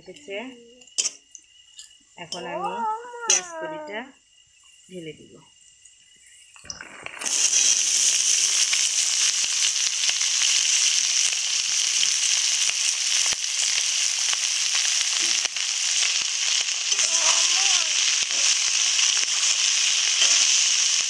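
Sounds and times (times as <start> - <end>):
vegetables sizzling in hot oil: 0.0 - 21.0
oil crackling: 6.6 - 21.0.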